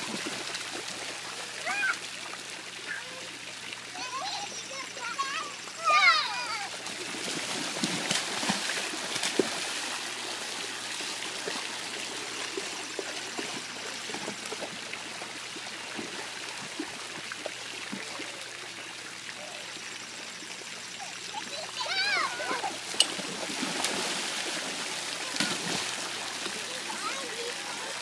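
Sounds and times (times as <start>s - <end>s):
water jets spraying: 0.0s - 28.0s
sharp water splashes: 3.8s - 18.2s, 21.4s - 28.0s.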